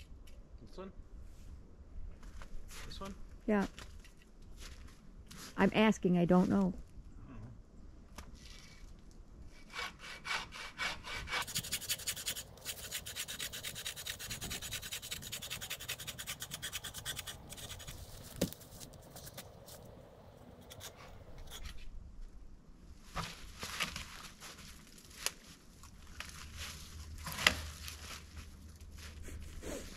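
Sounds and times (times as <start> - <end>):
hand saw cutting branch: 9.6 - 18.6.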